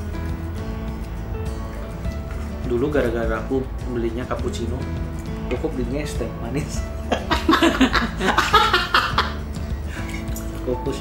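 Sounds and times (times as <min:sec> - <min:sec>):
background music with held notes: 0:00.0 - 0:11.0.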